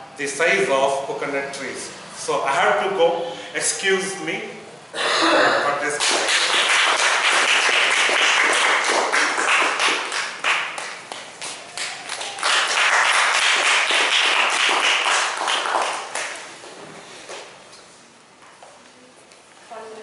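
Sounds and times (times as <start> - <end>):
crowd clapping: 5.9 - 16.6.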